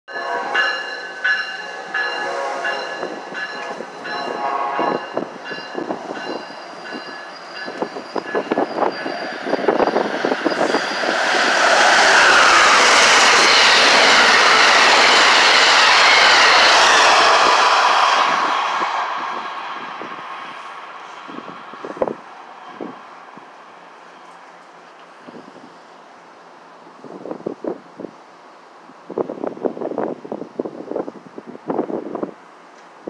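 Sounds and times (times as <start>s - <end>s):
high steady ringing tones: 0.1s - 11.0s
train rushing past: 0.1s - 26.6s.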